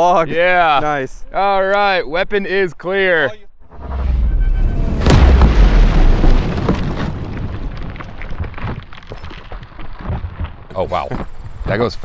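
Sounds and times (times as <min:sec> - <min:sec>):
low rumble: 0:03.7 - 0:09.2
sharp explosion: 0:03.7 - 0:09.2.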